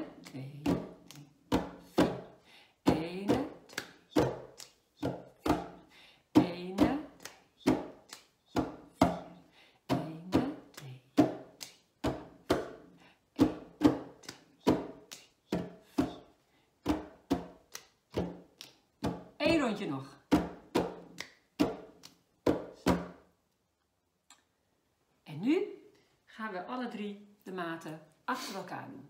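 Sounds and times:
hand claps: 0:00.0 - 0:02.2, 0:03.3 - 0:04.8, 0:06.8 - 0:09.2, 0:10.4 - 0:11.8, 0:13.4 - 0:16.1, 0:17.3 - 0:18.8, 0:20.8 - 0:23.0.

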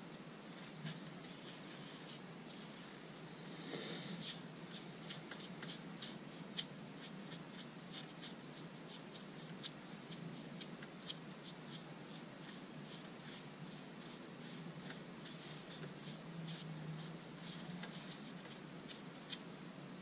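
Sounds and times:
foam brush scratching on wood: 0:04.2 - 0:19.4.

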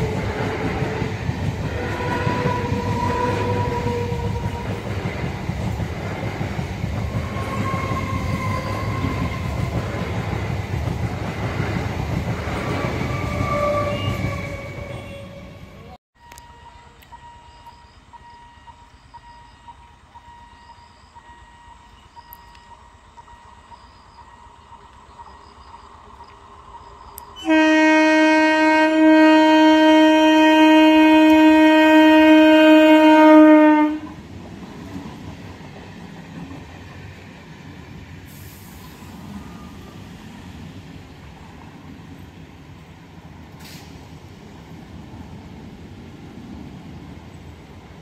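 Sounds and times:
train wheels rumbling on rail: 0:00.0 - 0:48.0
train horn blast: 0:01.7 - 0:04.8, 0:12.6 - 0:17.4, 0:27.4 - 0:34.2.

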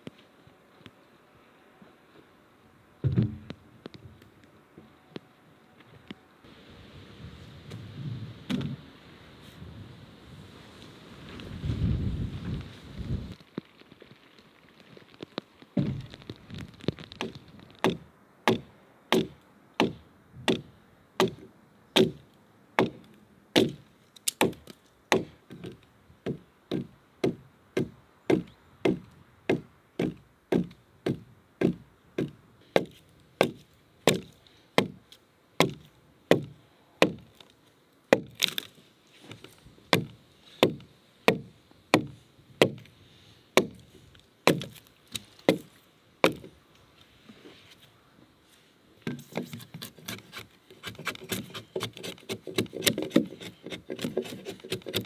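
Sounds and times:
axe chopping into log: 0:17.2 - 0:21.4, 0:22.0 - 0:22.2, 0:23.6 - 0:35.0, 0:35.6 - 0:37.3, 0:39.9 - 0:42.8, 0:43.6 - 0:43.8, 0:44.5 - 0:44.8, 0:45.5 - 0:46.5, 0:49.1 - 0:55.0.

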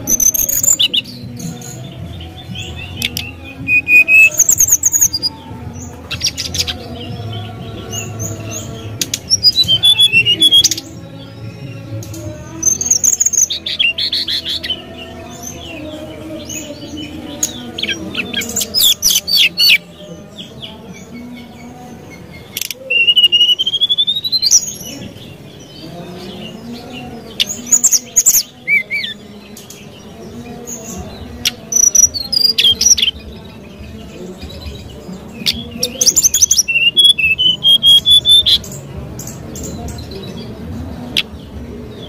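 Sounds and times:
bird chirping: 0:00.0 - 0:42.0.

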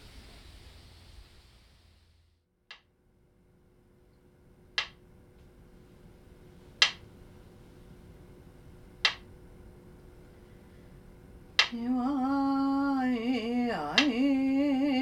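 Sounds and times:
wooden stick knocking on wood: 0:04.8 - 0:05.0, 0:06.8 - 0:07.0, 0:09.0 - 0:09.3.

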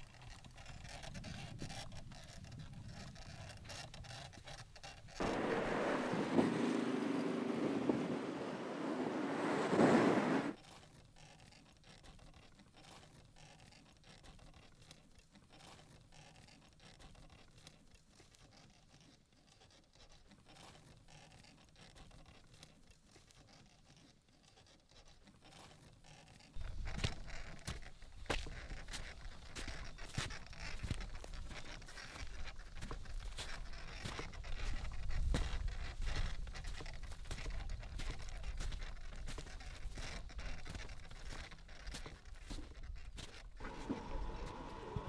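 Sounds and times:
pram wheels rolling on dirt: 0:00.0 - 0:45.0
car passing: 0:05.2 - 0:10.6.

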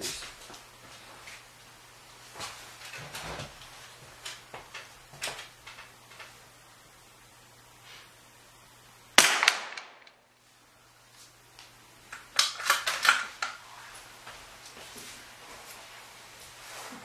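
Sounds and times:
rifle shot: 0:09.2 - 0:10.1.

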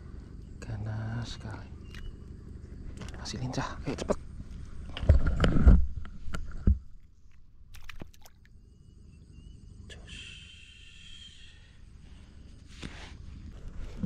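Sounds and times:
fish splashing into water: 0:07.7 - 0:08.5.

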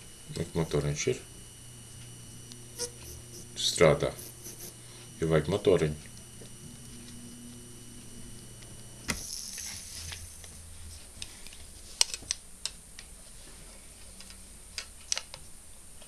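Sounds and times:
hard drive motor whine: 0:00.0 - 0:11.6.

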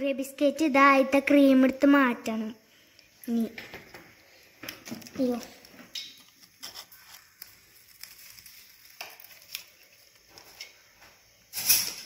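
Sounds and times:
crackling rustle: 0:02.8 - 0:12.0
knife scraping biscuits: 0:06.2 - 0:10.6.

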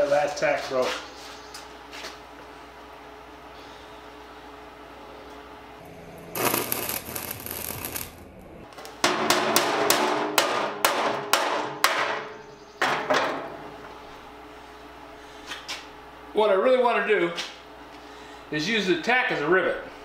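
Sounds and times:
welder arc crackling: 0:05.8 - 0:09.0
sharp welding pops: 0:06.3 - 0:10.3.

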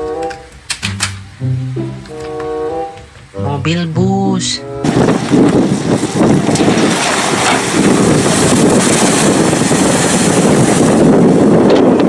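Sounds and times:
water splashing against hull: 0:04.8 - 0:12.0.

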